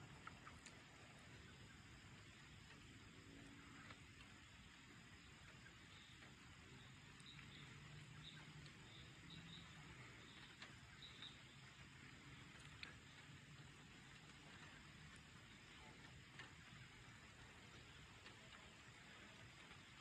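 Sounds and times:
soft high chirps: 6.8 - 11.6.

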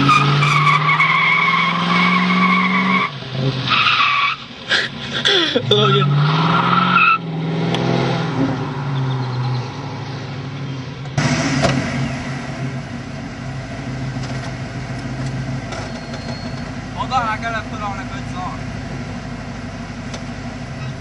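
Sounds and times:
tire squeal: 0.0 - 4.5, 5.6 - 7.4, 8.8 - 9.8, 15.6 - 17.2, 20.7 - 21.0
car engine pulling away: 0.0 - 21.0
car engine idling: 8.7 - 21.0.

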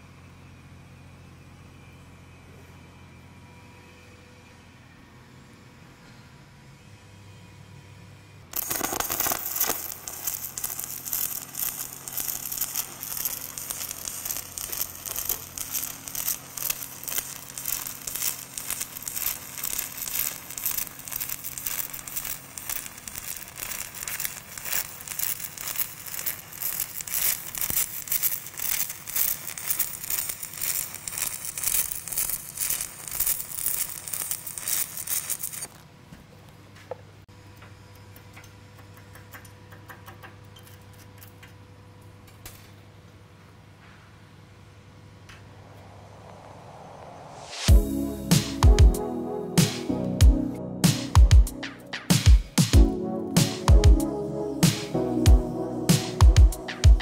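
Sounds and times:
welding arc crackling: 8.5 - 35.9, 47.5 - 49.0, 49.6 - 57.0
low hum: 45.2 - 57.0.

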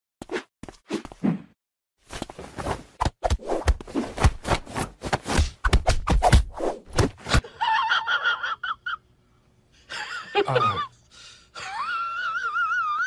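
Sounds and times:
woman wheezing laughter: 7.4 - 9.0, 9.9 - 10.9, 11.6 - 13.0.

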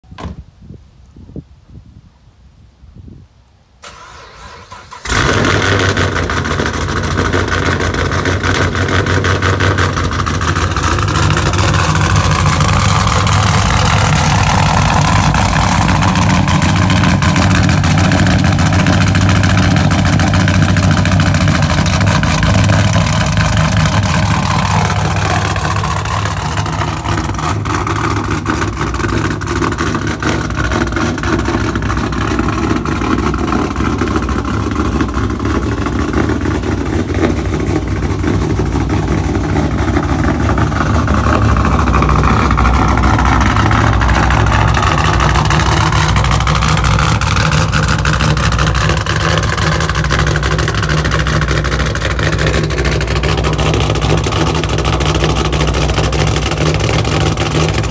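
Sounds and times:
car engine idling: 3.8 - 57.9.

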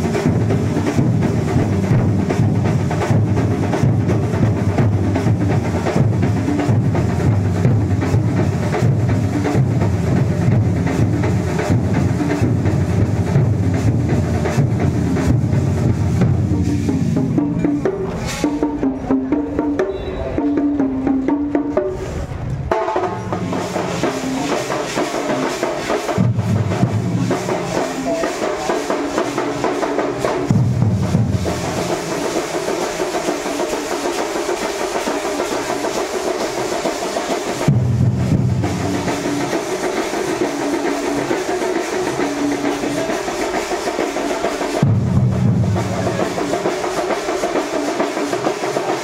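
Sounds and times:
procession drumming: 22.6 - 49.0.

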